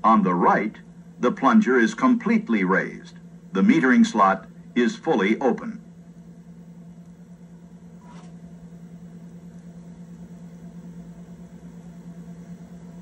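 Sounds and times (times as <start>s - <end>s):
projector humming: 0.0s - 13.0s.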